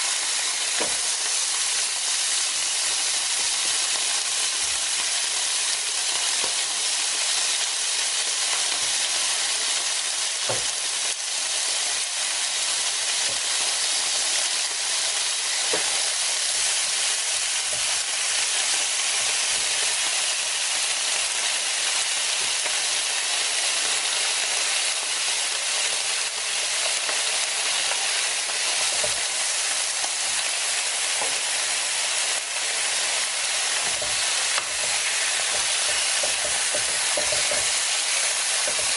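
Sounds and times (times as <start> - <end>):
meat sizzling on a grill plate: 0.0 - 38.9.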